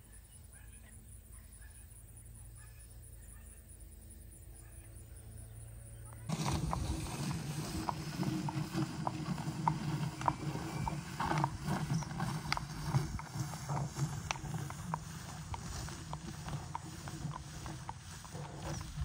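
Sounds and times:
hooves clip-clopping on asphalt: 6.3s - 19.0s
tyre dragging on asphalt: 6.3s - 19.0s.

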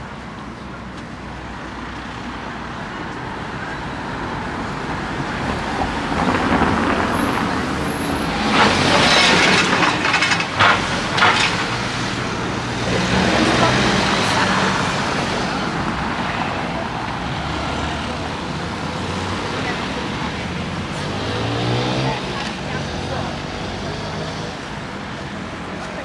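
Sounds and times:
sharp rattles: 8.5s - 12.2s.

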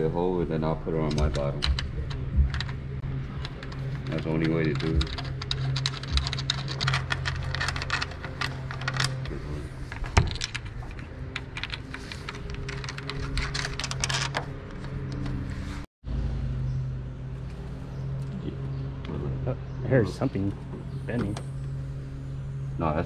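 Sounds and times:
small clicks and rattles: 1.1s - 9.3s, 10.2s - 15.4s.

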